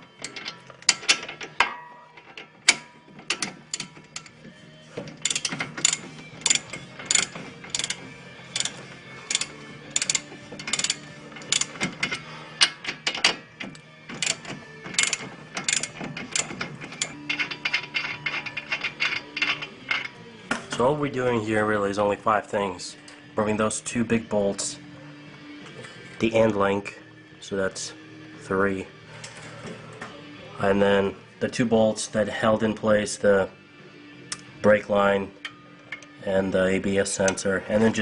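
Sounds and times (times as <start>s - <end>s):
socket ratchet clicking: 5.2s - 20.1s.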